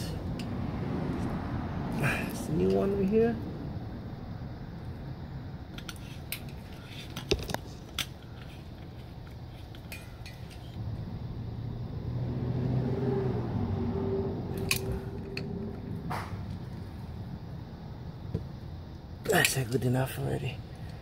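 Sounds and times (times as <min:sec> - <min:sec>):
low hum: 0:00.0 - 0:19.3
clicks and clinks of handling parts: 0:05.7 - 0:10.8, 0:14.5 - 0:15.5.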